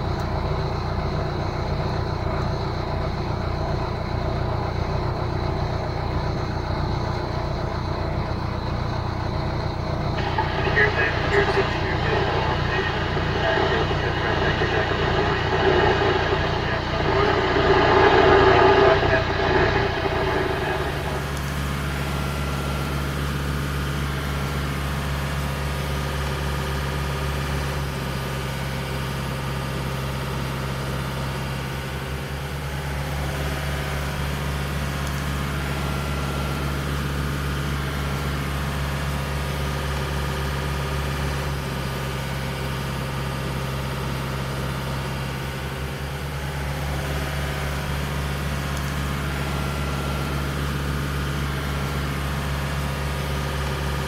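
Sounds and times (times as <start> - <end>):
boat engine droning: 0.0 - 29.6.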